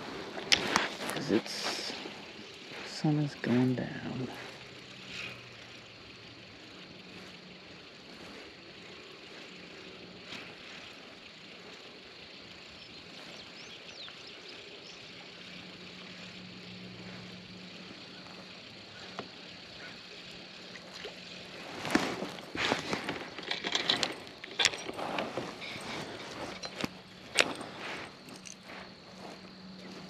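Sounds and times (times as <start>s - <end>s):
outdoor background noise: 0.0s - 30.0s
fishing reel cranking: 0.3s - 21.6s
water splashing: 20.7s - 22.6s.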